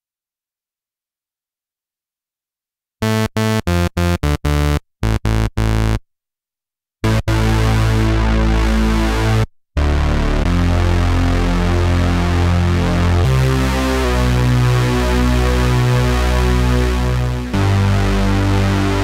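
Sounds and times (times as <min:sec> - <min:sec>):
held deep synthesizer bass notes: 0:03.0 - 0:06.0, 0:07.0 - 0:19.0
synthesizer staccato bass notes: 0:03.0 - 0:06.0, 0:07.0 - 0:19.0.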